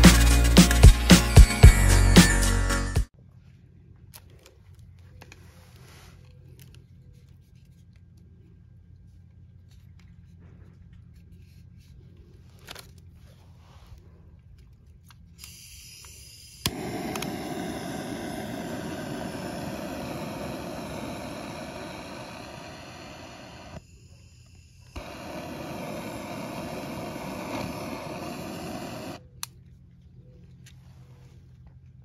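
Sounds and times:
torch ignition click: 0:15.4 - 0:23.8, 0:24.9 - 0:29.5
jet torch hissing: 0:15.4 - 0:23.9, 0:24.8 - 0:29.2.

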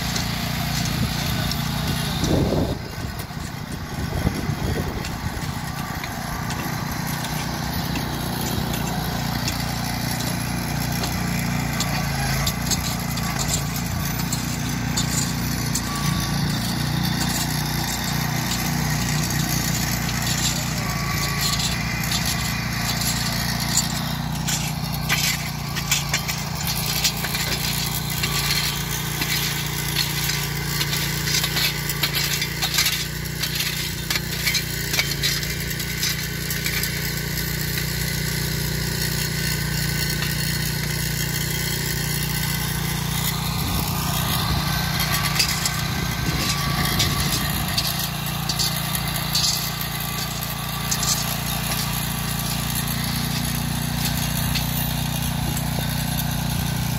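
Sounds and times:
metallic clinks and knocks of tools: 0:00.0 - 0:56.9
small petrol engine running: 0:00.0 - 0:56.9.

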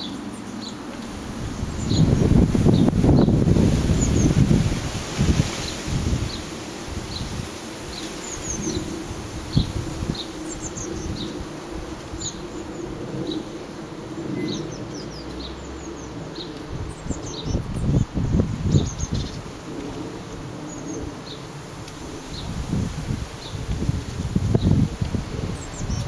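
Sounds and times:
wind rumbling on microphone: 0:00.0 - 0:26.0
bird calls and chirps: 0:07.9 - 0:11.4, 0:12.2 - 0:19.5.

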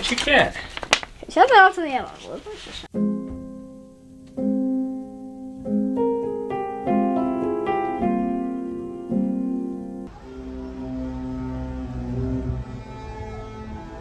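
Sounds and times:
slow piano chords: 0:02.9 - 0:13.0.

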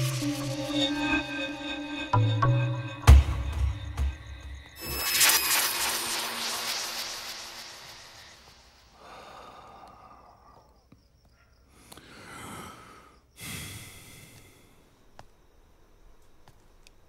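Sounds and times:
person breathing heavily and sighing: 0:09.0 - 0:10.7, 0:11.7 - 0:14.9.

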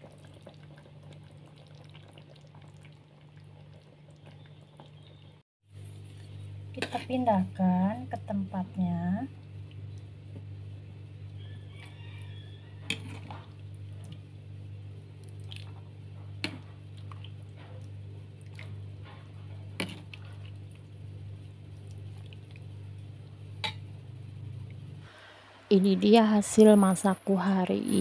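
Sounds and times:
steady low hum: 0:05.7 - 0:28.0.

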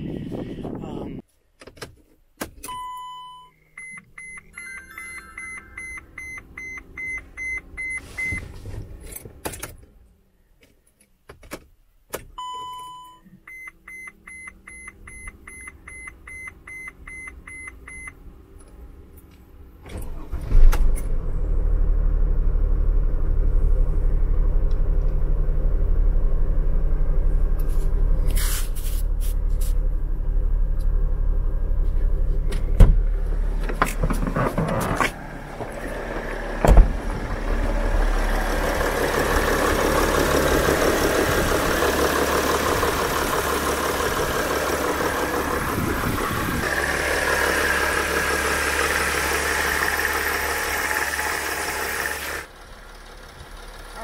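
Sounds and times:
dashboard ticks and beeps: 0:02.7 - 0:08.4
dashboard chime: 0:04.4 - 0:06.7
diesel engine idling: 0:21.5 - 0:33.8, 0:35.1 - 0:54.0.

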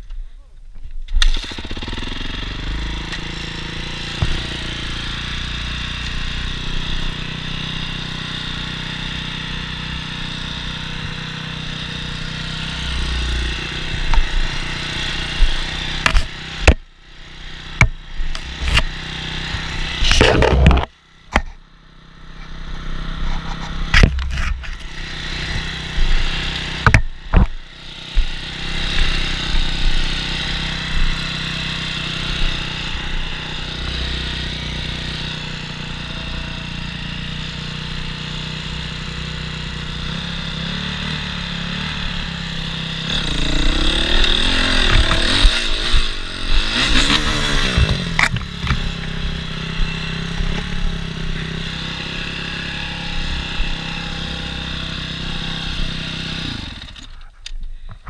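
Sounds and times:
motorcycle engine revving: 0:01.1 - 0:58.0.

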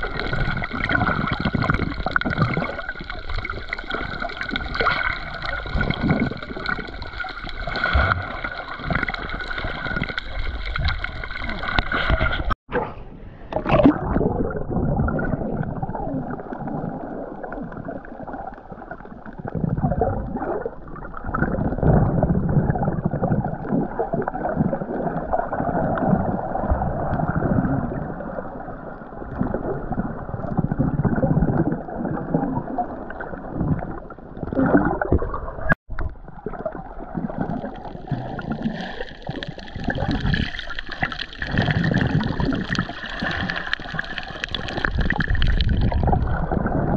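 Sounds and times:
muffled water sloshing and gurgling: 0:00.0 - 0:46.9.

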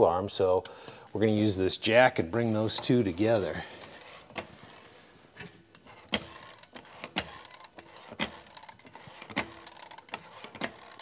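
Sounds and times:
hydraulic jack clicking: 0:05.8 - 0:11.0.

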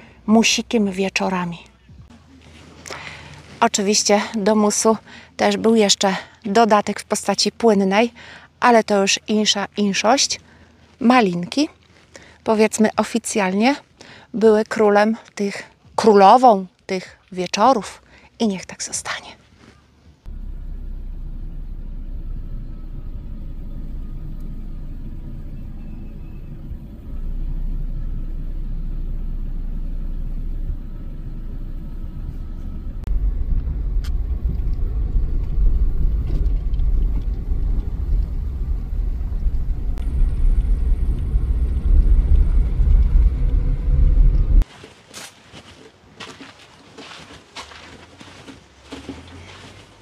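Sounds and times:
wind buffeting microphone: 0:33.0 - 0:44.6.

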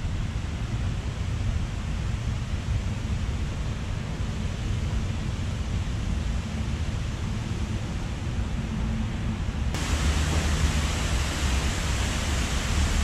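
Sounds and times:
waterfall rushing: 0:09.8 - 0:13.0.

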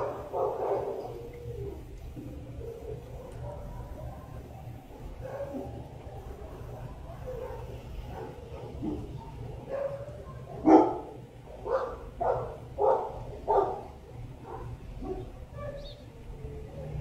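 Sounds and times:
dog barking: 0:00.0 - 0:01.2, 0:03.2 - 0:04.3, 0:05.0 - 0:05.8, 0:06.7 - 0:15.9.

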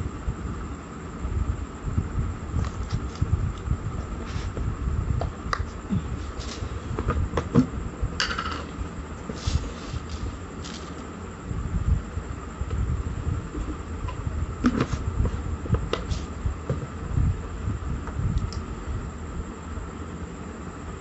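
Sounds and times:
faint steady hum: 0:00.0 - 0:21.0
wind buffeting microphone: 0:01.3 - 0:08.2, 0:11.4 - 0:19.2.

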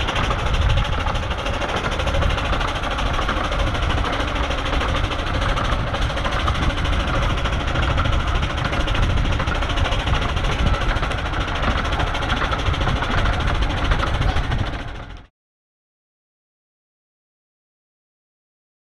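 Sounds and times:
steam locomotive exhaust beats: 0:00.0 - 0:15.3
train rumble: 0:00.0 - 0:15.3.

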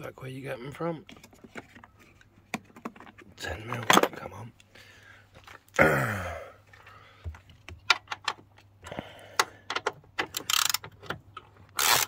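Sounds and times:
ratchet wrench clicking: 0:10.3 - 0:10.8, 0:11.8 - 0:12.0.

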